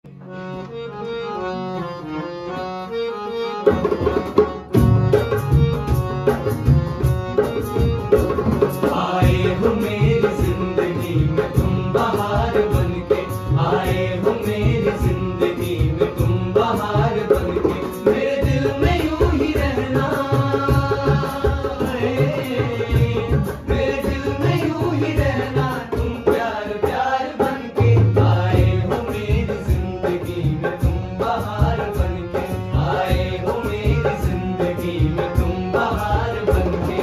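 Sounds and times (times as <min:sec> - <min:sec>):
harmonium: 0:00.0 - 0:37.0
hand drums steady rhythm: 0:03.6 - 0:37.0
men singing: 0:08.5 - 0:37.0.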